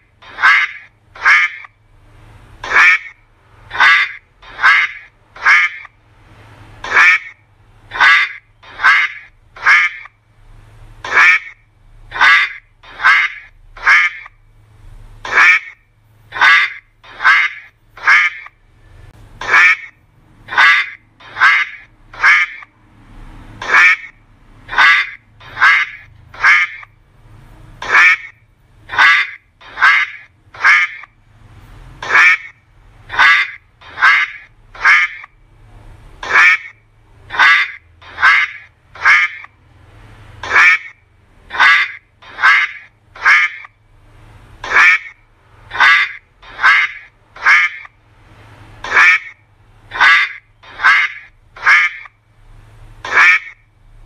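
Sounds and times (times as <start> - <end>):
duck quacking: 0.0 - 1.8, 2.6 - 6.0, 6.8 - 10.2, 11.0 - 14.4, 15.2 - 18.6, 19.4 - 22.7, 23.5 - 26.9, 27.8 - 31.2, 32.0 - 35.4, 36.2 - 39.6, 40.4 - 43.8, 44.6 - 48.0, 48.8 - 52.2, 53.0 - 53.6.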